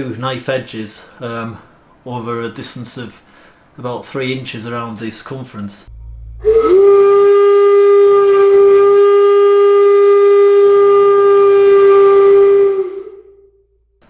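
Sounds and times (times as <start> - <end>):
steam whistle deep note: 5.9 - 13.9.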